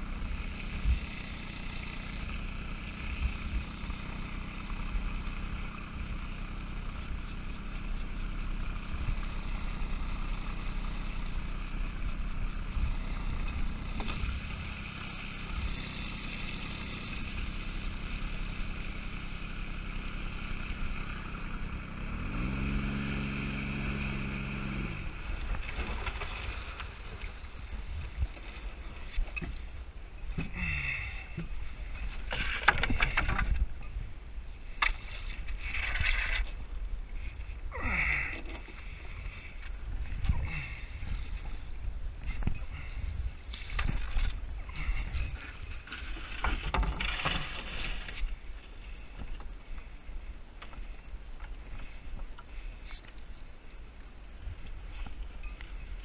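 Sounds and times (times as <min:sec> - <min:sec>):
outboard motor humming: 0:00.0 - 0:56.0
water moving around hull: 0:25.0 - 0:30.4, 0:31.2 - 0:56.0
wind on microphone: 0:38.7 - 0:48.6.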